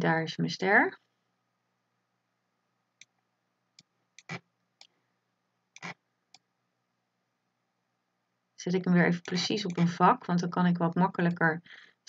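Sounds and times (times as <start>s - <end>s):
computer mouse clicks: 3.8s - 5.0s, 5.8s - 6.5s, 9.2s - 9.9s.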